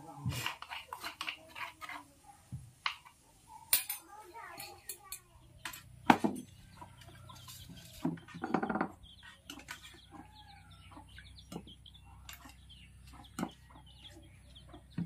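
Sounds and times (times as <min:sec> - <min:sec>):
spoon clinking on steel bowls: 0:03.7 - 0:06.5
chickens clucking: 0:05.3 - 0:15.0.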